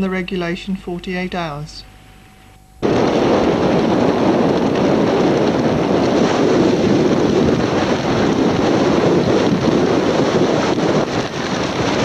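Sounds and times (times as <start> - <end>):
gale-force wind buffeting microphone: 2.8 - 12.0.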